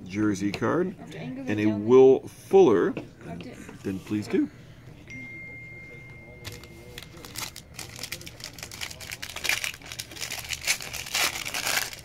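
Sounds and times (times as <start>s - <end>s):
foil wrapper crinkling and tearing: 6.4s - 12.0s.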